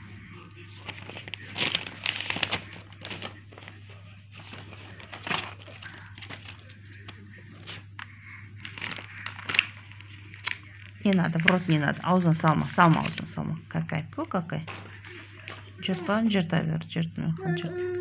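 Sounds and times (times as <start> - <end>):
steady low hum: 0.0 - 18.0
paper crumpling and tearing: 0.7 - 11.6.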